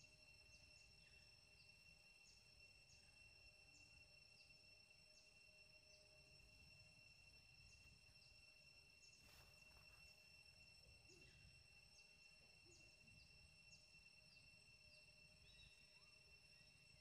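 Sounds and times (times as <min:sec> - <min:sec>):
high-pitched insect drone: 0:00.0 - 0:17.0
soft rustle: 0:09.2 - 0:10.3.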